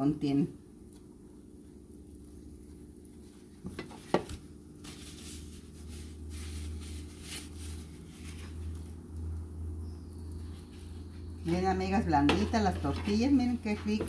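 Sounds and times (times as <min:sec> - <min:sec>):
steady low hum: 0:00.0 - 0:14.0
soft rustling: 0:02.2 - 0:09.0.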